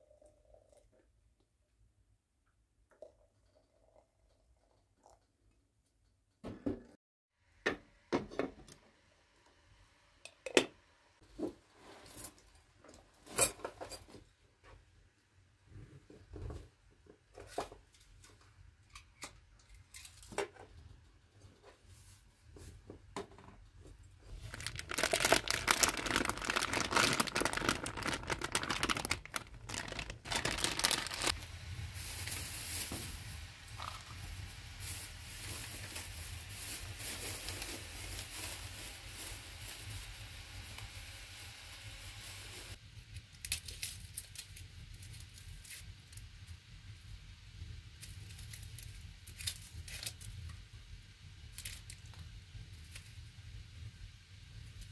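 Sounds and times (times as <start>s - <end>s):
plastic wrapping crinkling: 24.3s - 31.4s.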